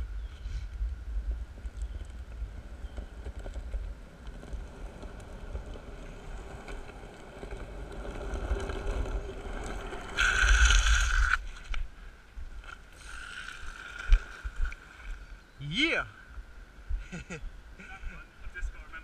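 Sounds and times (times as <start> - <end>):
longboard wheels rolling on asphalt: 0.0 - 15.6
wheels sliding with hiss: 1.6 - 11.8, 12.7 - 15.2.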